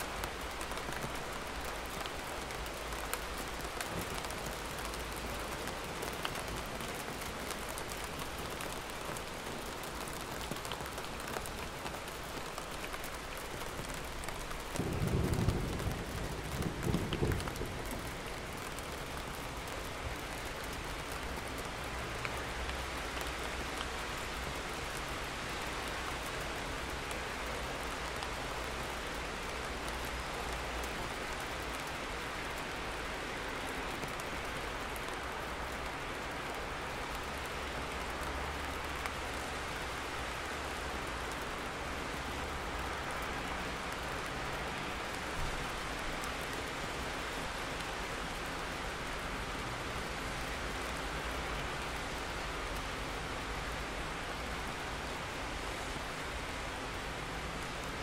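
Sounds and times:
steady rain: 0.0s - 58.0s
thunder rumble: 14.8s - 18.3s.

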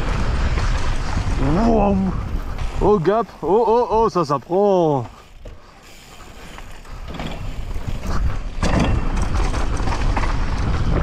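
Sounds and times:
wind rushing on microphone: 0.0s - 4.2s, 6.6s - 11.0s
bike rumble: 0.0s - 11.0s
knocks and rattles: 7.1s - 10.6s.

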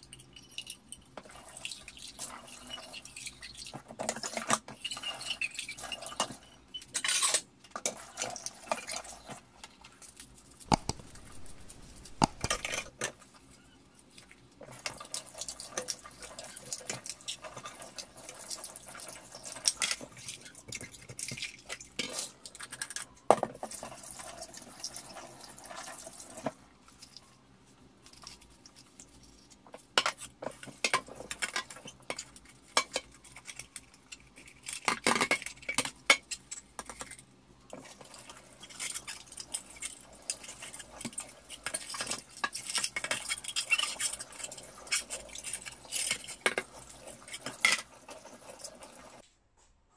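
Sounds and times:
tap water running: 46.6s - 49.2s.

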